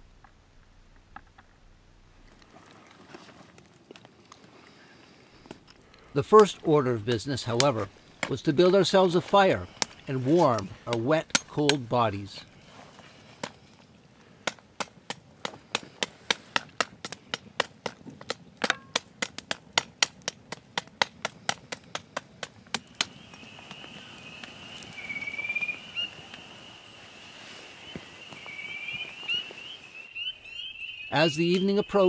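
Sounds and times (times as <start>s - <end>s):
chorus of frogs trilling: 22.8s - 32.0s.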